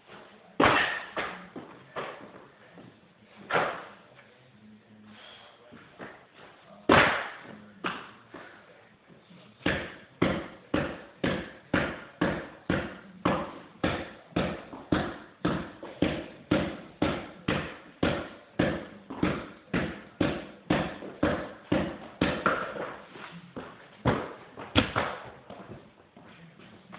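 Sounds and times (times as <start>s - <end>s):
basketball bouncing on hardwood: 9.7s - 23.0s, 23.6s - 25.9s.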